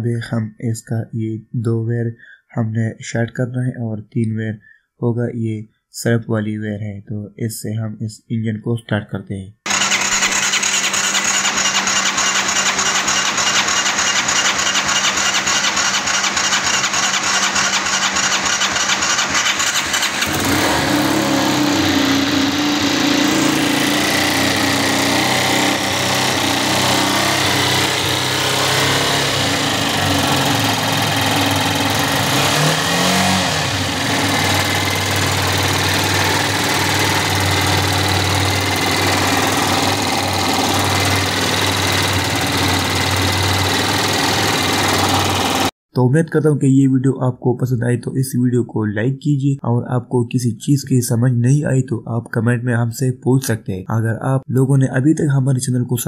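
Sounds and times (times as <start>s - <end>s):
electric starter cranking: 9.7s - 45.7s
engine rev: 9.7s - 45.7s
engine running: 9.7s - 45.7s.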